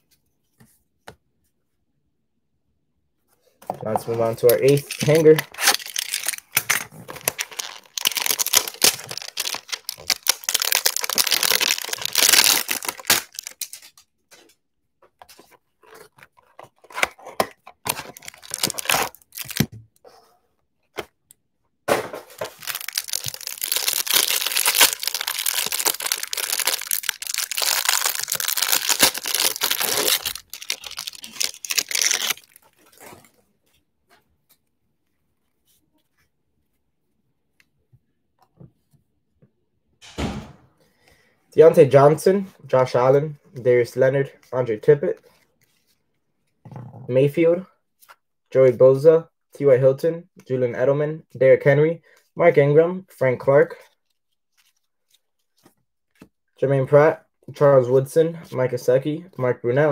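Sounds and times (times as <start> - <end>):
packaging tearing and crinkling: 4.5 - 14.0, 16.8 - 19.7, 22.3 - 33.0.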